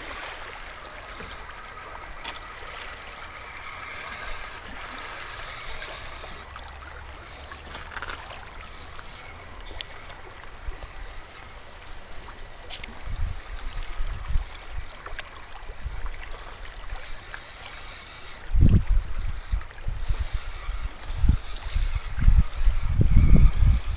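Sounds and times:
waves lapping on rocks: 0.0 - 23.9
wind rumble on microphone: 12.9 - 15.0, 18.5 - 23.9.

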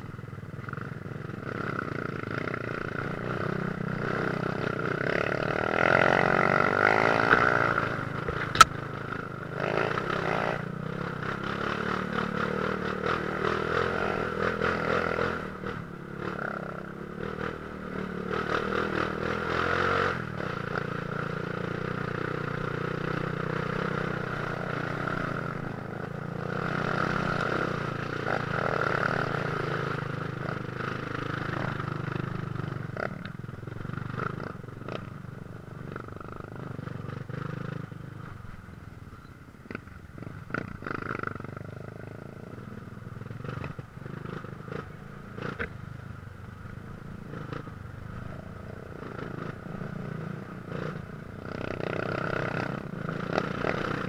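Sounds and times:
dirt bike engine revving: 1.4 - 33.2, 49.0 - 54.0.

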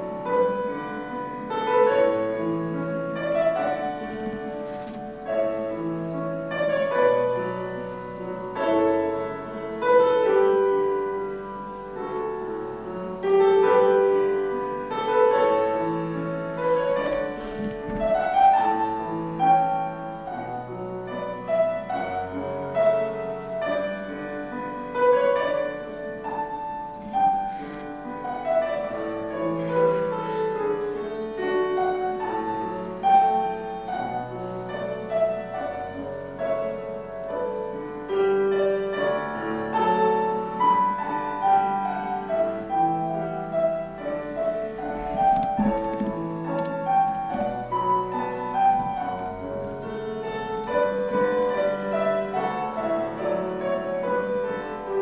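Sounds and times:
slow classical piano music: 0.0 - 55.0.

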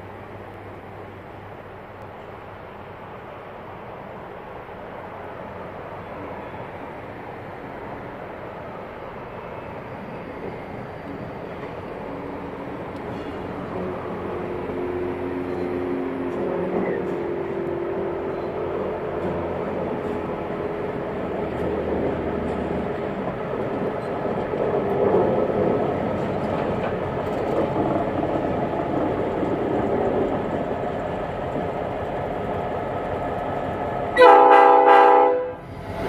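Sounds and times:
diesel locomotives rolling past: 0.0 - 36.0
multi-tone air horn blast: 34.2 - 35.6.

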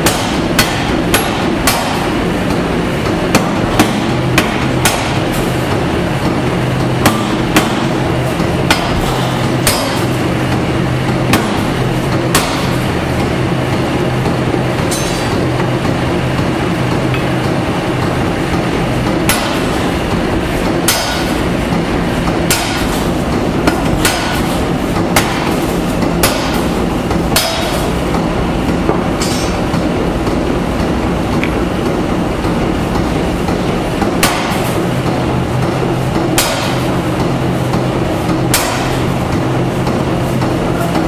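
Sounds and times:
hammer striking hot steel: 0.0 - 2.2, 3.3 - 5.5, 6.2 - 8.0, 8.6 - 10.2, 11.3 - 12.8, 14.8 - 15.5, 18.5 - 19.9, 20.6 - 21.5, 22.3 - 28.2, 28.8 - 29.9, 33.5 - 34.8, 36.2 - 37.0, 38.3 - 39.1
power hammer mechanical hum: 0.0 - 41.0.

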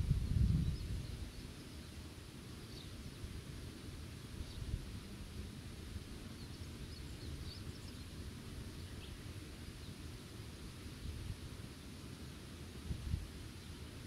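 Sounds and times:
wind buffeting microphone: 0.0 - 1.2.

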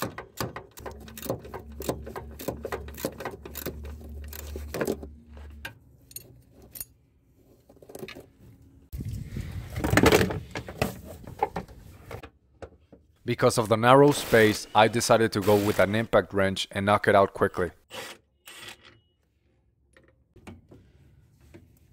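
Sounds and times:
hand ratchet clicking: 0.3 - 4.6.

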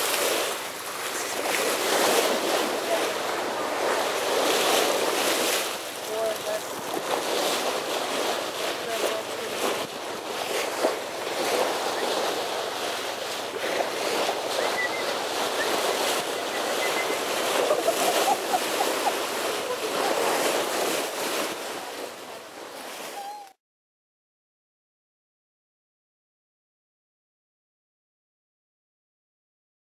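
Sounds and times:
sea water rushing and splashing: 0.0 - 23.5.

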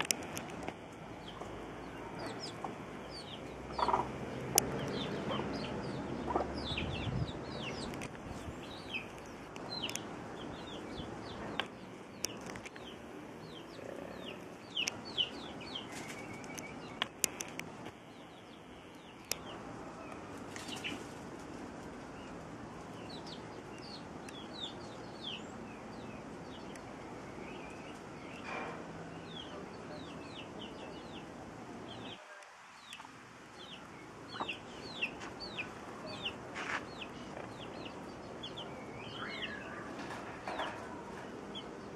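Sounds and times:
chicks peeping: 0.0 - 32.2, 32.8 - 41.9
hen clucking: 2.2 - 7.9, 34.3 - 36.4
sharp clicks: 16.4 - 18.0.

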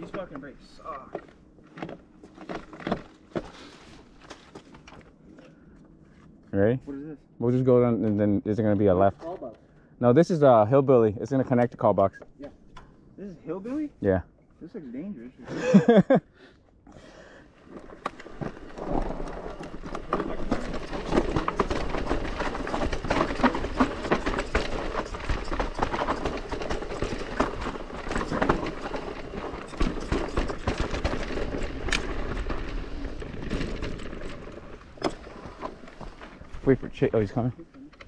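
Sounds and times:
bike rattling clicks and knocks: 0.0 - 5.7, 17.7 - 38.0
tyres crunching over dirt: 17.6 - 37.5.

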